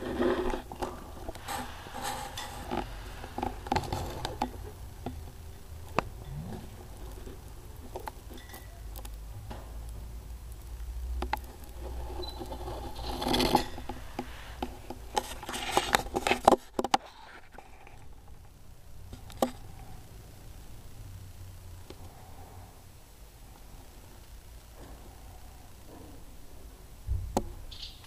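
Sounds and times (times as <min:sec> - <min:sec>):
scraping rustle: 0:00.0 - 0:09.8, 0:10.5 - 0:18.4.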